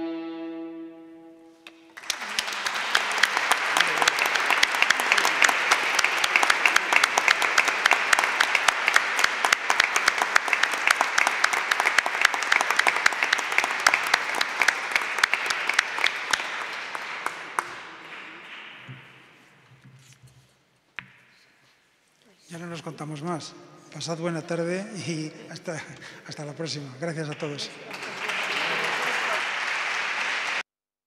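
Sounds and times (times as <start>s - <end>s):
audience applauding: 1.7s - 19.4s, 27.4s - 30.7s.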